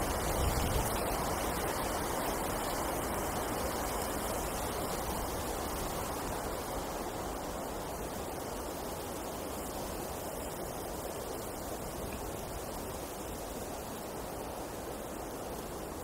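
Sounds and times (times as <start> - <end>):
wind blowing through forest: 0.0 - 16.0.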